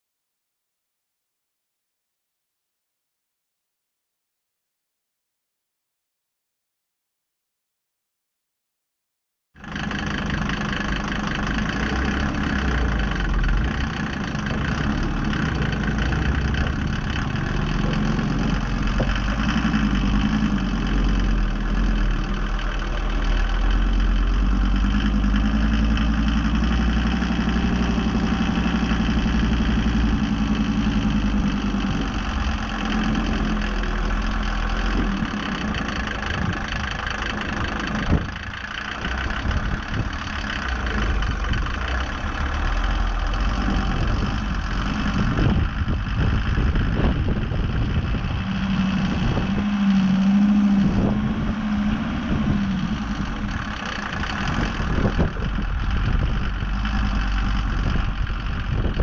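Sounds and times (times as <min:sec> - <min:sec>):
off-road vehicle engine running: 0:09.6 - 0:59.0.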